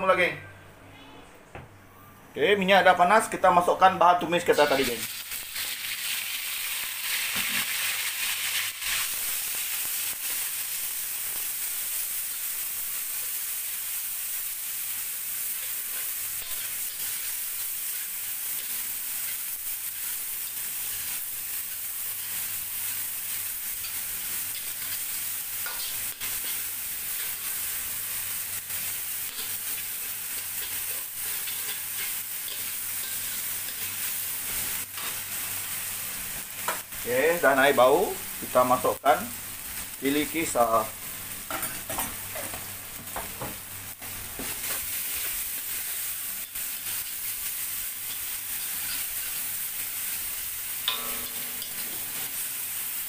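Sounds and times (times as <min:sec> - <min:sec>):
paste sizzling in hot oil: 0:04.6 - 0:53.0
metal spatula scraping wok: 0:29.3 - 0:35.2, 0:50.9 - 0:52.5.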